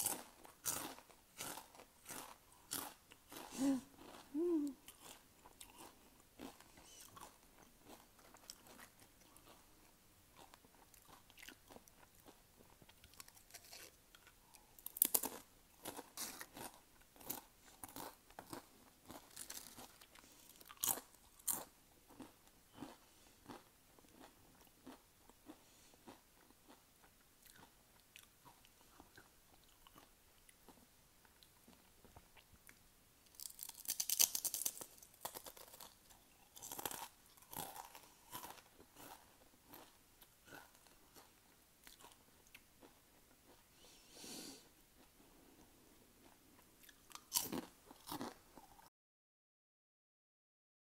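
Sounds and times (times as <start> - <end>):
potato chips crunching: 0.0 - 9.6, 10.4 - 25.6, 33.3 - 42.9, 46.8 - 48.8.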